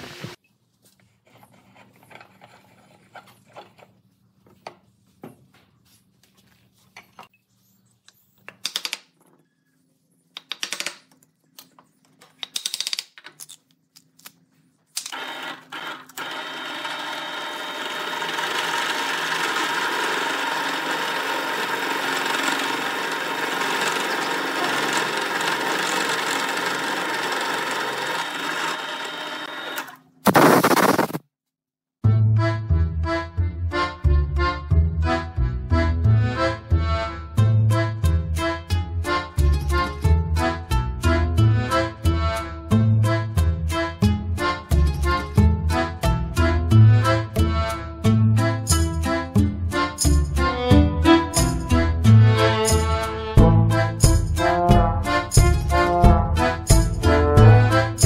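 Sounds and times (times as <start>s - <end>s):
drill press boring: 15.1s - 30.0s
short noise bursts: 30.3s - 31.2s.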